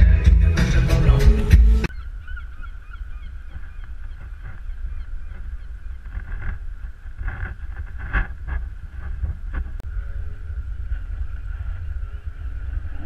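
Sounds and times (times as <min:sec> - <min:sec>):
wind rumbling on microphone: 0:01.8 - 0:13.0
birds calling faintly: 0:01.9 - 0:09.0.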